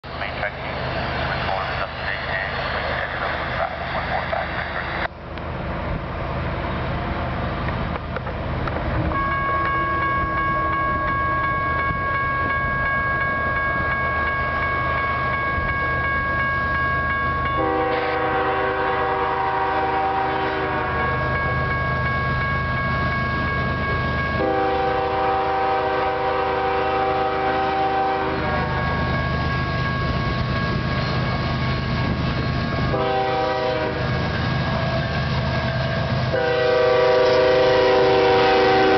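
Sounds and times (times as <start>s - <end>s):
freight train rumble: 0.0s - 38.9s
railroad crossing bell ringing: 8.6s - 38.9s
train air horn blasts: 17.6s - 21.2s, 24.4s - 28.8s, 32.9s - 34.2s, 36.3s - 38.9s.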